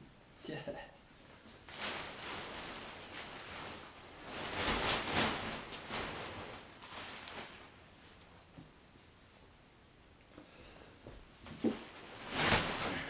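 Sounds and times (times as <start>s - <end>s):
tent fabric rustling: 1.3s - 9.7s, 11.3s - 13.0s.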